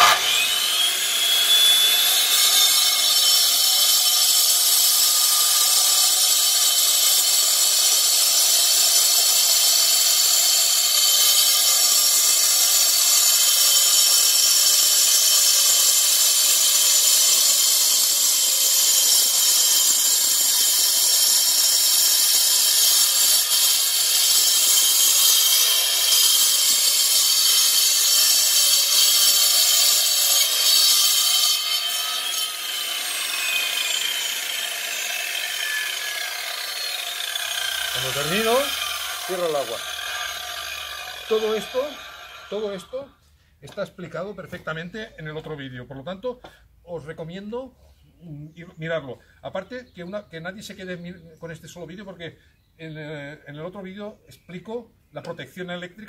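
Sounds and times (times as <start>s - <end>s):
angle grinder cutting slate: 0.0s - 42.9s.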